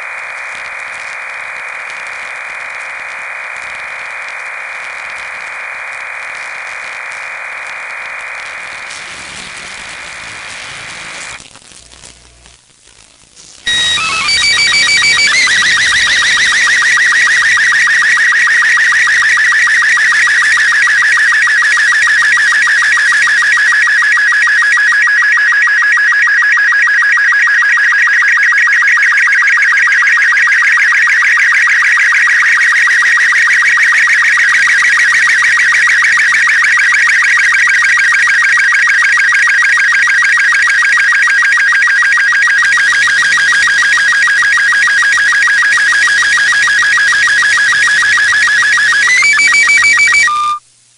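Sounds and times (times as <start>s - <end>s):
warbling electronic radio signal: 0.0s - 50.6s.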